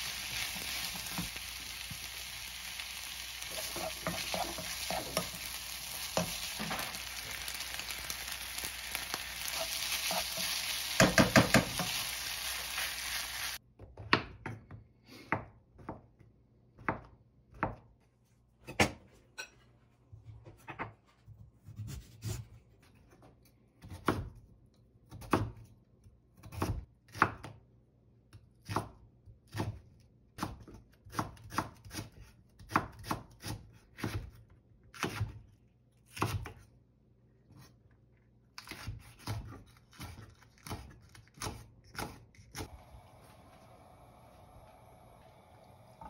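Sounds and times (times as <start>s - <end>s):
knife chopping on wooden board: 9.5s - 12.0s.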